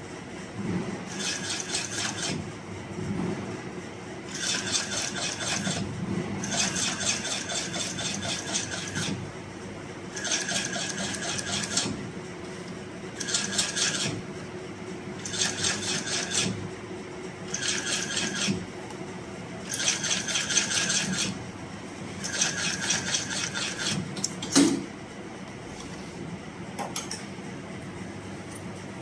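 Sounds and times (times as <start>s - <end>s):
sewing machine needle strokes: 1.1s - 2.4s, 4.3s - 9.2s, 10.1s - 12.0s, 13.2s - 14.2s, 15.2s - 16.6s, 17.5s - 18.6s, 19.6s - 21.4s, 22.2s - 24.0s.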